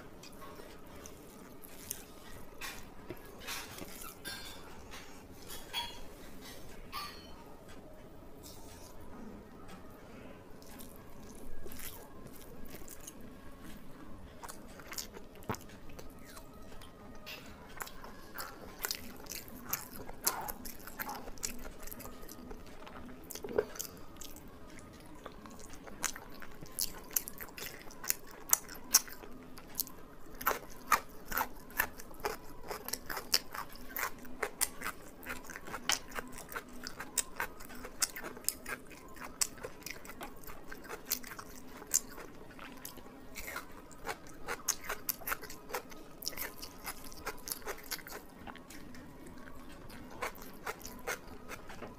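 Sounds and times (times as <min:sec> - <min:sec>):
person chewing and biting food: 0:10.6 - 0:13.8, 0:14.4 - 0:16.9, 0:17.7 - 0:51.9.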